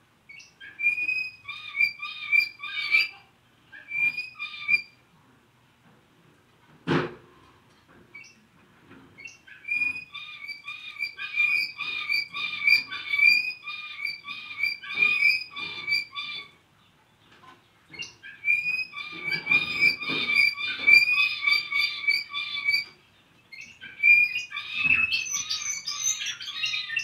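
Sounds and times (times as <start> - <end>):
canary singing ringing notes: 0.3 - 5.0, 9.2 - 16.6, 17.9 - 27.0.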